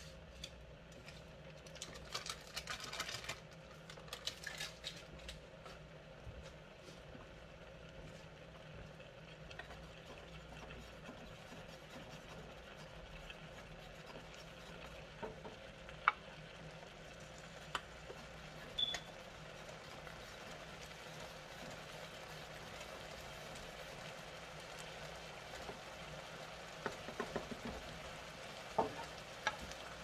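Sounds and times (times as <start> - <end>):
food sizzling in a pan: 8.0 - 30.0
wooden spoon knocking pan: 26.8 - 27.8, 28.8 - 29.6.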